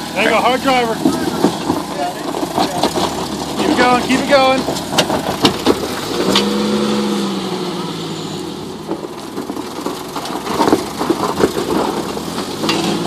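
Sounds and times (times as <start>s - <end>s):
engine running under load: 0.0s - 13.0s
knocks and crunches on rock: 0.9s - 6.6s, 8.8s - 13.0s.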